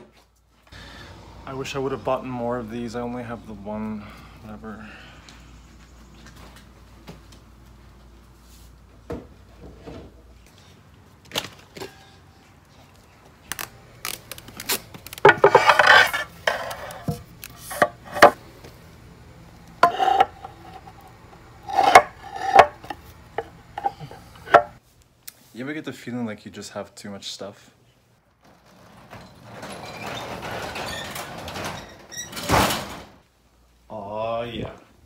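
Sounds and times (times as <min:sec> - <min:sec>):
scraping and rustling: 0:14.0 - 0:18.4
objects knocking and clattering: 0:15.1 - 0:18.4, 0:21.7 - 0:24.8.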